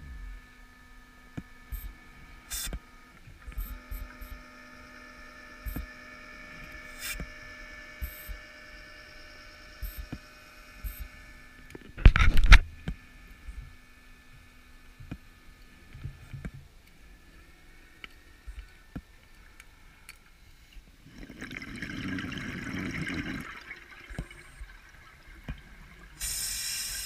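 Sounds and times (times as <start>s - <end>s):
underwater hum: 17.0s - 27.0s.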